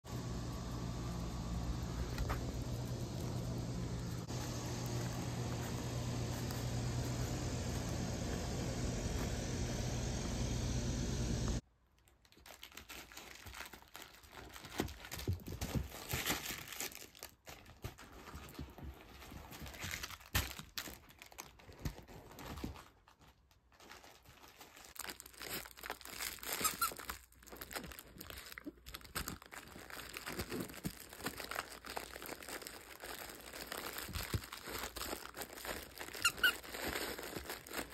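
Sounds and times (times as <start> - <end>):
crinkling and rustling: 0.1 - 10.9, 11.5 - 37.9
puppy playing with plush toys: 0.4 - 10.2, 12.1 - 37.9.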